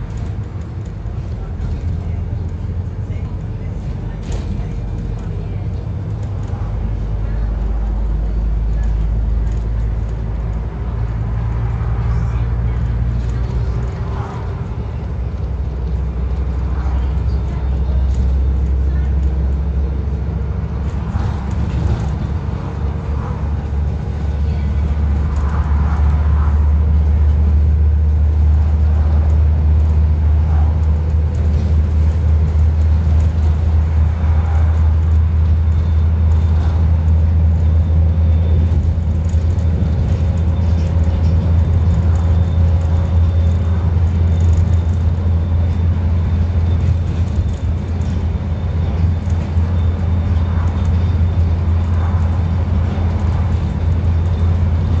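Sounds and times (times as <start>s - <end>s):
bus diesel engine drone: 0.0s - 55.0s
road noise: 0.0s - 55.0s.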